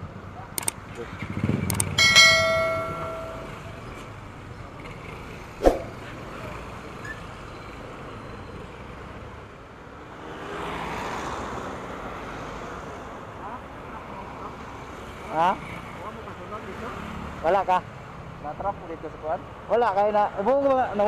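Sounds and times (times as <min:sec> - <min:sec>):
motorcycle engines and traffic: 0:00.0 - 0:21.0
bell-like ding: 0:02.0 - 0:03.9.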